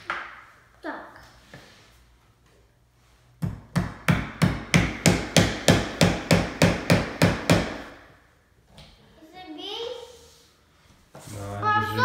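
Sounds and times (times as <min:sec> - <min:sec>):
hammer driving nail: 0:03.8 - 0:08.0.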